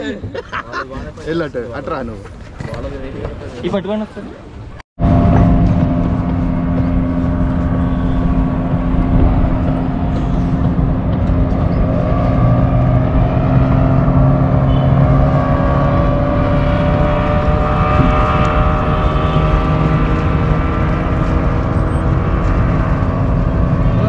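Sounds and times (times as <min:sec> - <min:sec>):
motor engine running: 0:05.0 - 0:24.0.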